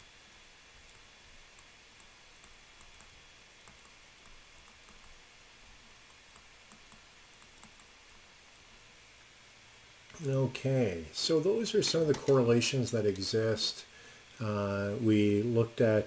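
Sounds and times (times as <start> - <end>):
stylus tapping on tablet screen: 0.9 - 5.2, 5.8 - 8.3.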